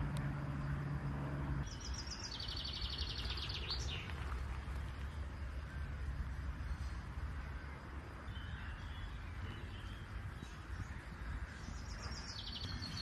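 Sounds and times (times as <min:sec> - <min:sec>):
low hum: 0:00.0 - 0:13.0
low steady rumble: 0:00.0 - 0:13.0
bird chirping trill: 0:01.6 - 0:04.1, 0:05.4 - 0:13.0.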